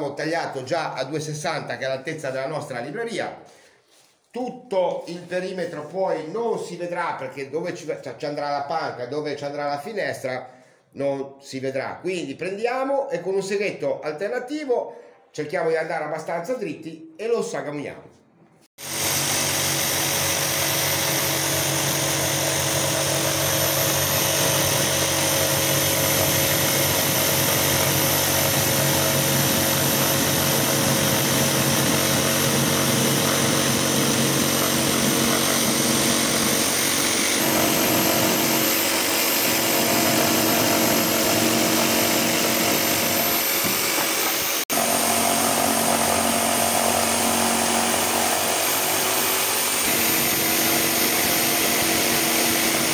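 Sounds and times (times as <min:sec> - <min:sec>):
jigsaw sawing through panel: 0:18.8 - 0:52.9.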